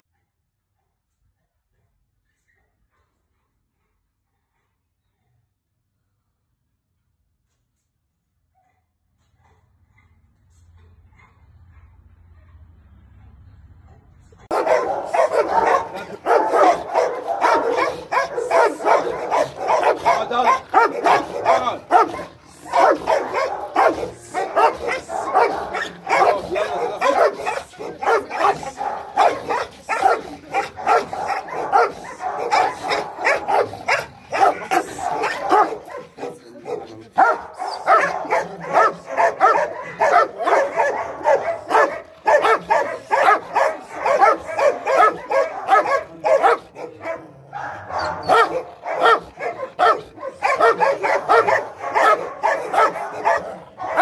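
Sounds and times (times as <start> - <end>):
dog barking rapidly: 14.5 - 54.0.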